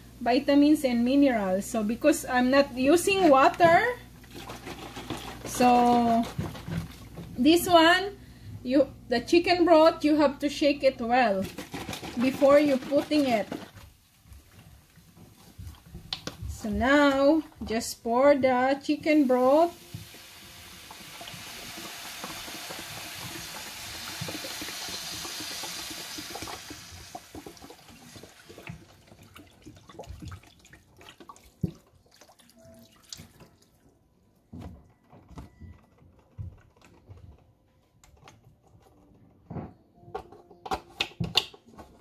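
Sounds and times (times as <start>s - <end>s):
broth pouring into a skillet: 19.3s - 29.0s.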